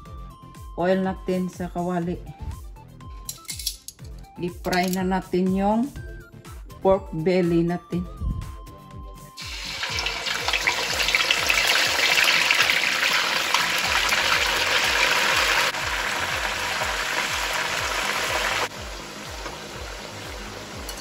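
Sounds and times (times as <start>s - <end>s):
pork sizzling in hot oil: 9.4s - 21.0s.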